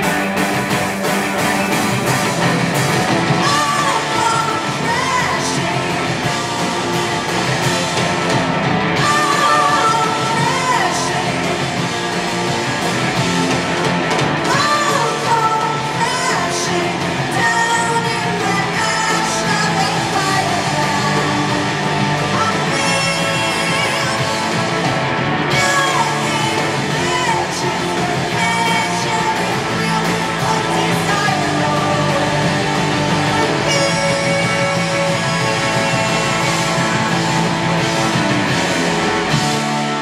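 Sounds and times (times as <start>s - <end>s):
electric guitars: 0.0s - 40.0s
punk rock band playing: 0.0s - 40.0s
person singing: 3.4s - 6.3s, 9.0s - 11.8s, 14.5s - 24.6s, 25.5s - 37.3s.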